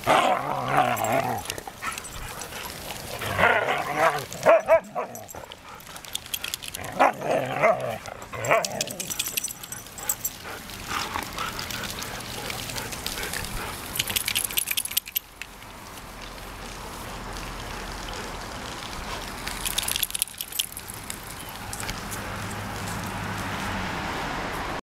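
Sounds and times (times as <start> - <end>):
dogs vocalizing while playing: 0.0 - 15.2.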